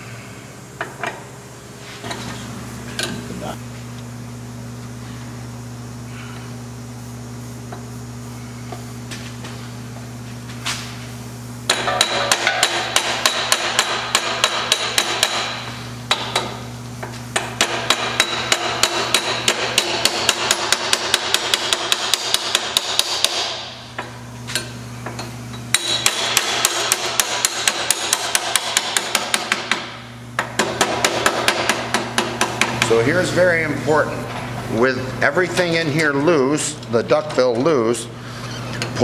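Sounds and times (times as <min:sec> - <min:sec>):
hammer tapping on metal: 0:11.7 - 0:16.6, 0:17.4 - 0:23.5.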